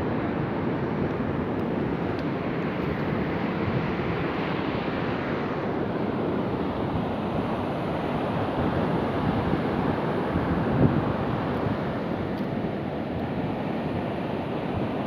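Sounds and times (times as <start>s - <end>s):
wind buffeting microphone: 8.4s - 11.9s.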